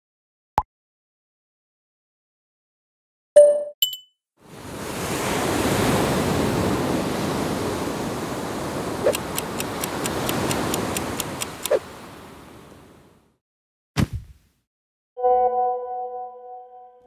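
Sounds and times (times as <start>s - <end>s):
ocean wave washing in: 4.4s - 13.2s.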